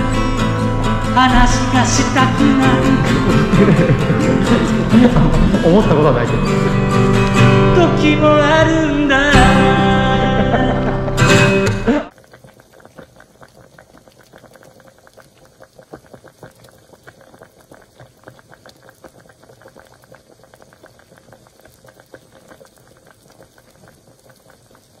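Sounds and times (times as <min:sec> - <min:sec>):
faint dense crackling and popping: 0:11.0 - 0:25.0.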